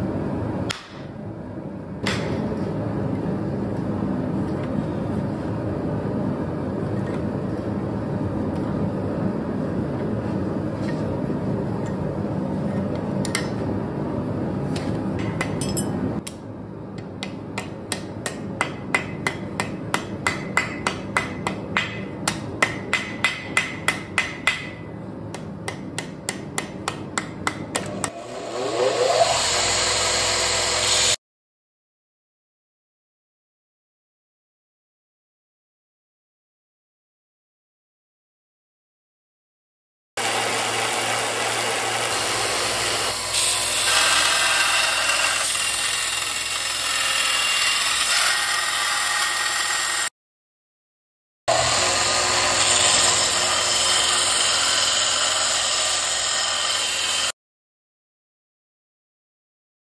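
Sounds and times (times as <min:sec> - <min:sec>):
hammer striking steel on anvil: 0:00.7 - 0:01.1, 0:02.0 - 0:02.5, 0:15.2 - 0:16.4, 0:17.0 - 0:28.2
belt grinder whining and hissing: 0:28.1 - 0:31.2, 0:51.5 - 0:57.3.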